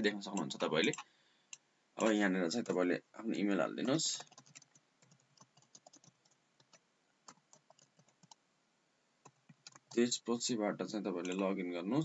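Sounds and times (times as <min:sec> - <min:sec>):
faint keyboard typing: 0:00.0 - 0:02.9, 0:03.7 - 0:08.4, 0:09.2 - 0:10.2, 0:11.0 - 0:11.6.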